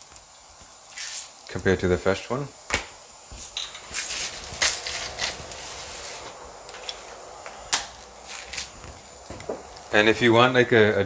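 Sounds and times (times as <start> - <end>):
scraping strokes: 3.4 - 9.0.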